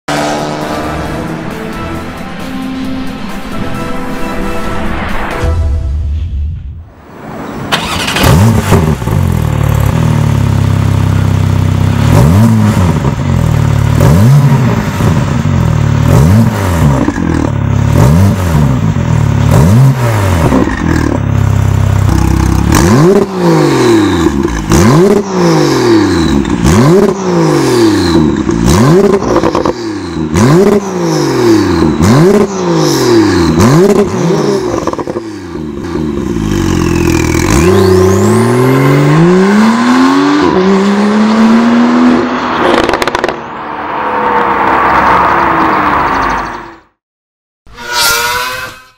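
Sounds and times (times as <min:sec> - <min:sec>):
car engine revving: 0:00.1 - 0:01.6, 0:07.2 - 0:46.5
exhaust cracks: 0:42.6 - 0:43.5.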